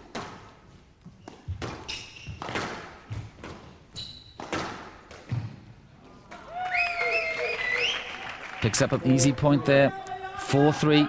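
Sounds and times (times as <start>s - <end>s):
shoes squeaking on court floor: 0.0s - 6.4s
squash ball hits: 1.3s - 3.7s, 4.3s - 5.7s.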